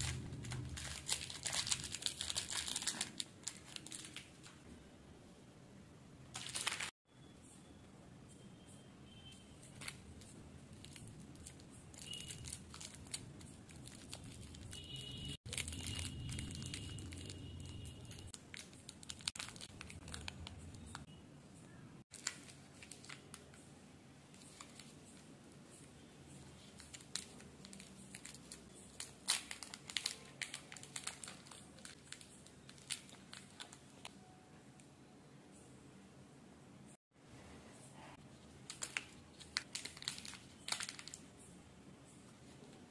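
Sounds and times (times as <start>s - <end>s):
candy wrappers crinkling: 0.0s - 4.6s, 6.3s - 7.0s, 9.6s - 21.0s, 22.0s - 23.7s, 24.3s - 25.3s, 26.3s - 34.2s, 38.4s - 41.5s.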